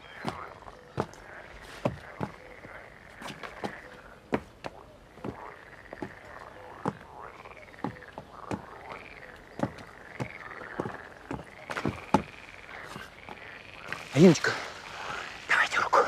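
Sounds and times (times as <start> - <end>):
chorus of frogs croaking: 0.0 - 16.0.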